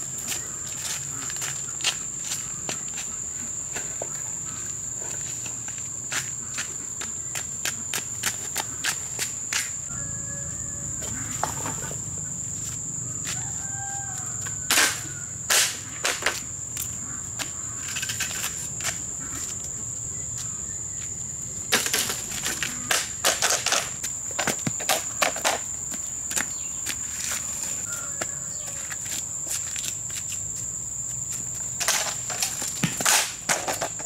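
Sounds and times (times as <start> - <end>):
footsteps on dirt road: 0.1 - 15.2, 16.3 - 21.2, 24.0 - 33.0
high-pitched insect drone: 8.4 - 32.9.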